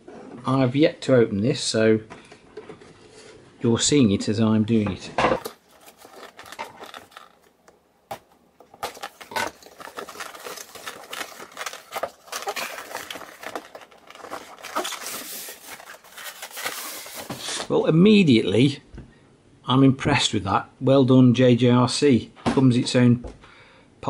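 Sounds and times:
cardboard box rustling and scraping: 5.4 - 7.5, 8.1 - 17.7.

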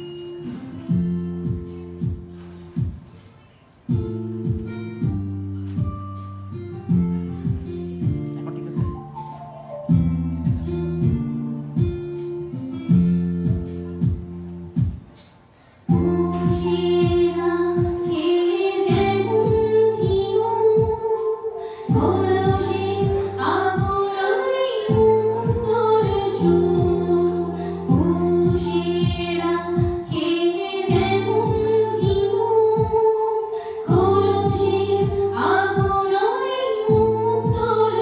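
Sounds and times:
low plucked notes: 4.0 - 14.9
woman singing into microphone: 15.9 - 38.0.

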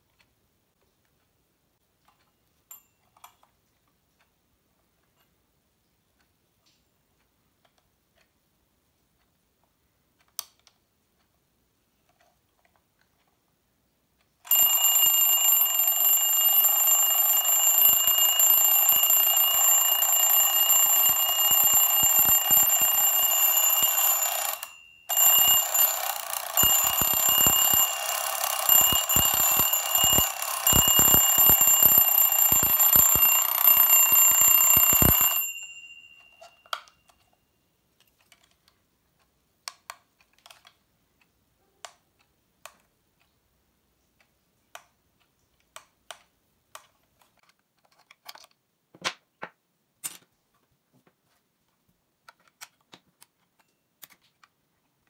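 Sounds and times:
twin-bell alarm clock ringing: 14.5 - 37.2.

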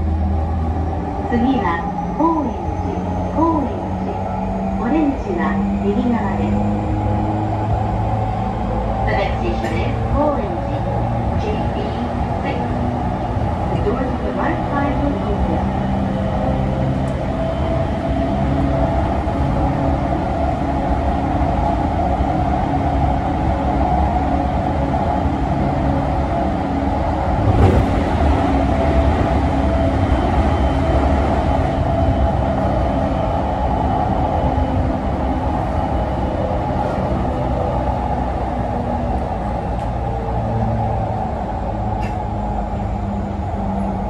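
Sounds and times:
train wheels rumbling on rail: 0.0 - 44.0
loud train clatter: 9.0 - 16.1, 27.0 - 32.8, 41.8 - 43.7.

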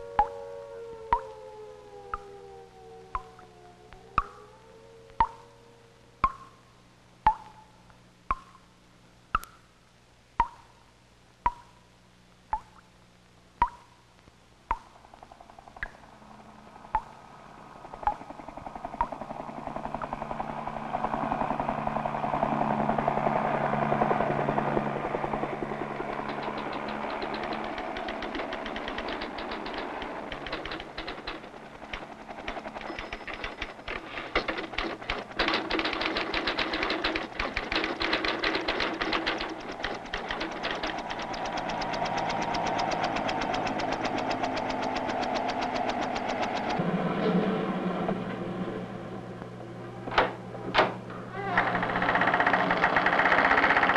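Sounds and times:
traffic-like street noise: 15.1 - 37.2
fast mechanical rattle: 17.7 - 46.8, 51.4 - 53.9.

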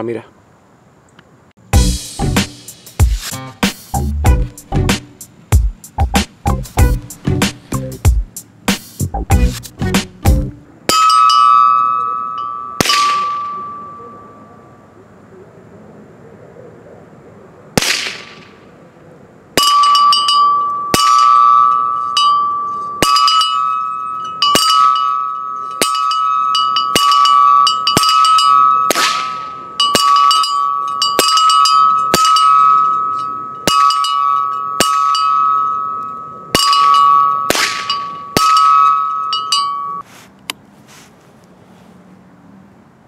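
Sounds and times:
bullets clanging on steel bell: 10.9 - 14.7, 19.6 - 40.0.

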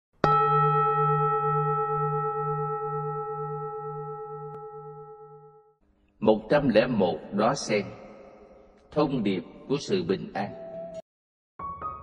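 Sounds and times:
bowl bell ringing: 0.2 - 5.8.

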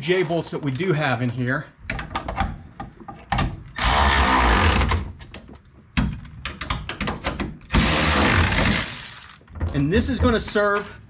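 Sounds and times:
power wrench running: 3.8 - 4.9, 7.7 - 9.4
clicks and knocks: 5.2 - 7.7.

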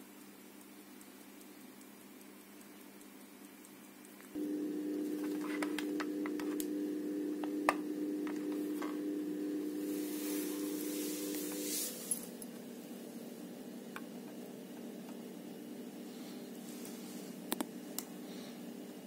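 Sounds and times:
steady low hum: 4.3 - 19.0.

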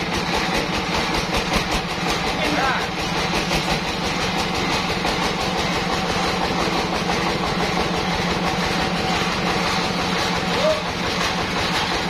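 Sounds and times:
sawmill machinery droning: 0.0 - 12.0.

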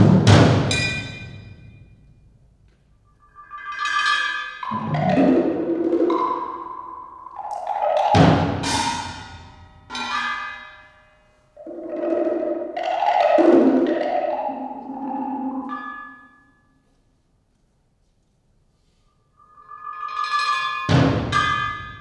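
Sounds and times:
mallet strokes on drums and blocks: 18.8 - 22.0.

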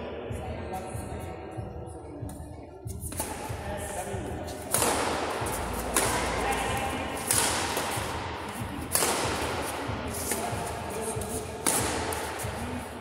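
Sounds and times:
rackets striking shuttlecock: 3.1 - 12.8.

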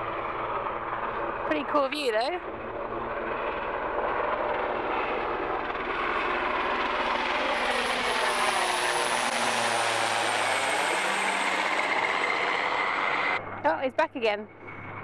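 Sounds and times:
helicopter passing overhead: 0.0 - 15.0.

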